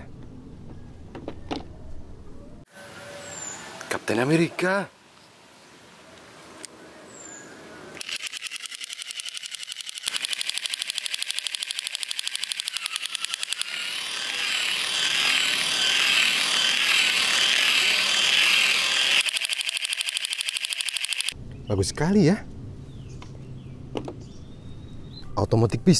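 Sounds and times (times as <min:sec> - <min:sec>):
toy clicking rattle: 0:08.0 - 0:21.4.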